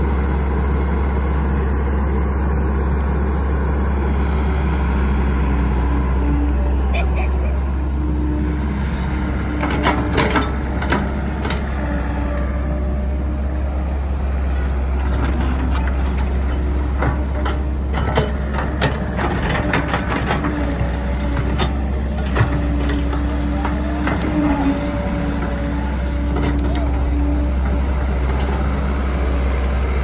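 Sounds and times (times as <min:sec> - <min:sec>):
excavator diesel engine running: 0:00.0 - 0:30.0
excavator bucket knocks and clanks: 0:09.5 - 0:11.7, 0:15.2 - 0:24.8.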